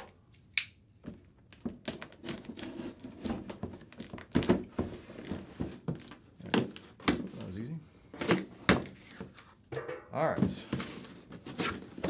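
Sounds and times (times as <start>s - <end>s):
tape and cardboard crinkling: 0.3s - 9.7s, 10.5s - 12.0s
knife cutting packing tape: 1.8s - 4.5s.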